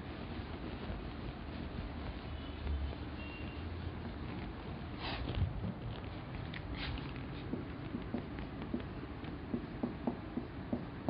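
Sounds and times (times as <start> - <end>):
steady background hum: 0.0 - 11.0
marker tapping on whiteboard: 7.2 - 11.0.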